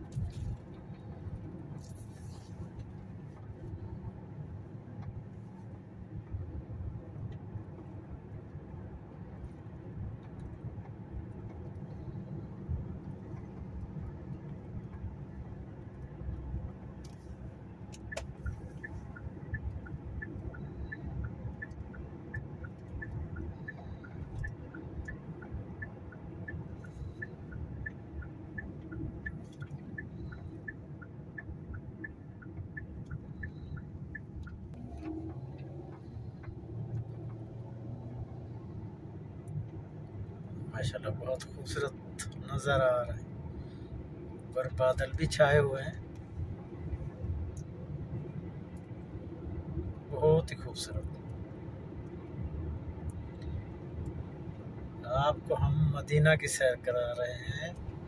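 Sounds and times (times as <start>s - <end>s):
car cabin road and engine rumble: 0.0s - 58.0s
two-tone ticking signal: 18.0s - 34.7s.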